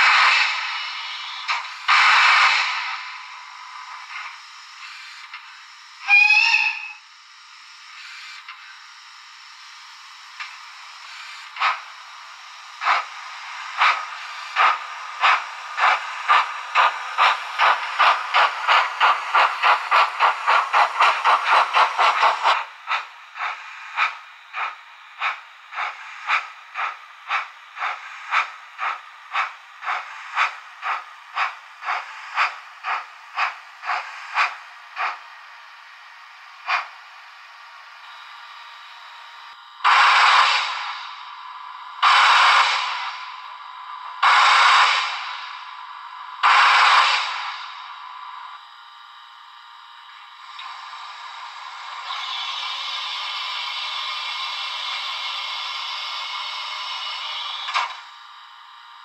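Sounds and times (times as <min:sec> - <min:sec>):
steam hiss: 0:00.0 - 0:38.4, 0:39.8 - 0:41.4, 0:42.0 - 0:48.2, 0:50.4 - 0:58.1
steam locomotive chuffs: 0:00.0 - 0:58.8
locomotive whistle: 0:06.0 - 0:07.1, 0:39.8 - 0:40.8, 0:42.0 - 0:43.0, 0:44.2 - 0:45.3.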